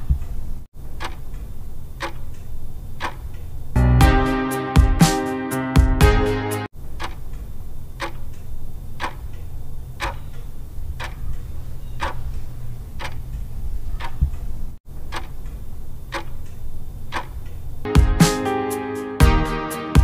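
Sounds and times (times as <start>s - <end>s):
clock ticking: 0.9s - 3.4s, 7.0s - 7.4s, 8.0s - 8.4s, 9.0s - 14.4s, 15.0s - 17.5s.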